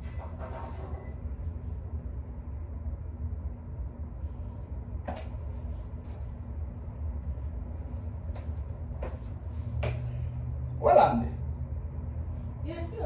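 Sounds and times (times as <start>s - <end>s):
faint high whine: 0.0s - 13.0s
low background hum: 0.0s - 13.0s
sandal stepping on threshold: 4.6s - 6.4s, 8.2s - 10.3s.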